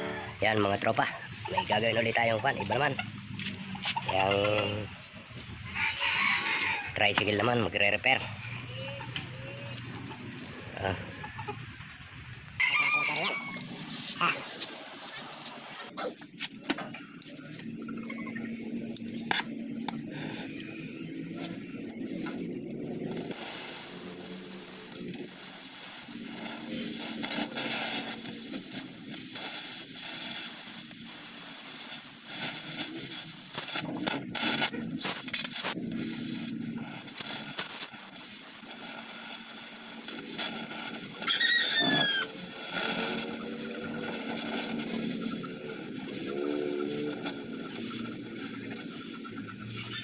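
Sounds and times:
gas torch hissing: 0:18.9 - 0:50.0.

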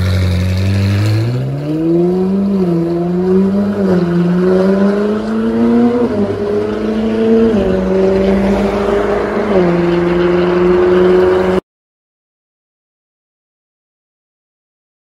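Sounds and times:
sports car engine accelerating: 0:00.0 - 0:11.6.

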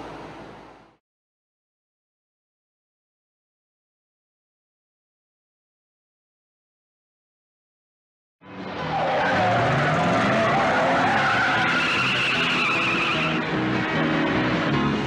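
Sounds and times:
car engines running: 0:08.5 - 0:15.0
tyres squealing: 0:08.9 - 0:13.4.

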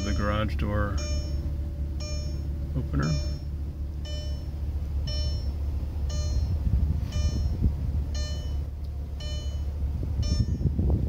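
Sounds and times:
short high warning beeps: 0:00.0 - 0:07.6, 0:08.2 - 0:10.6
car engine humming: 0:00.0 - 0:11.0.

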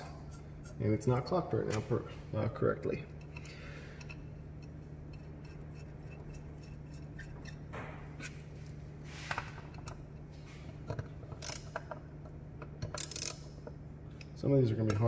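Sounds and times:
steady low hum: 0:00.0 - 0:15.0
metal parts clinking: 0:10.9 - 0:12.0, 0:12.8 - 0:14.3.

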